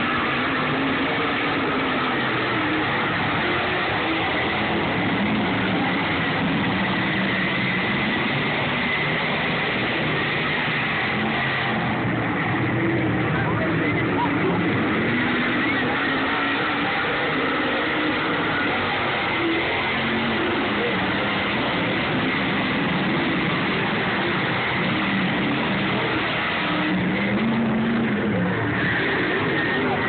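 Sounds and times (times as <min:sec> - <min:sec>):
steady wash of noise: 0:00.0 - 0:30.0
stock car engines passing: 0:00.0 - 0:30.0.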